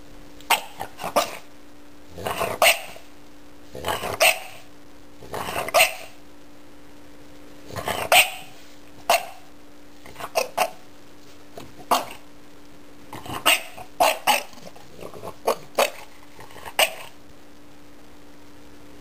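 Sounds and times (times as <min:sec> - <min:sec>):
dog barking: 0:00.5 - 0:01.5, 0:02.2 - 0:03.0, 0:03.9 - 0:04.7, 0:05.4 - 0:06.2, 0:07.8 - 0:09.5, 0:10.1 - 0:10.8, 0:11.8 - 0:12.2, 0:13.2 - 0:14.7, 0:15.4 - 0:17.2.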